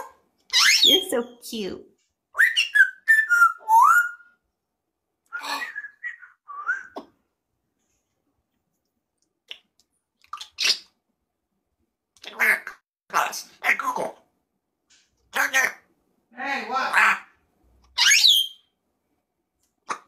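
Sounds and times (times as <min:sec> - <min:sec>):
parrot whistling: 0:00.0 - 0:01.0, 0:02.4 - 0:04.4, 0:05.3 - 0:07.0, 0:18.0 - 0:18.7.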